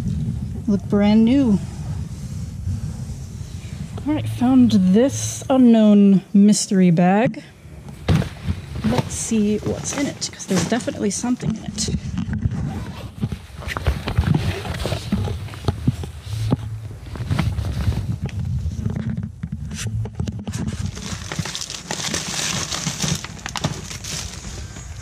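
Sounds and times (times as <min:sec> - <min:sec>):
low handling rumble: 0:00.0 - 0:21.8
items knocking and clattering: 0:07.9 - 0:12.6
plastic packaging crinkling: 0:20.5 - 0:25.0.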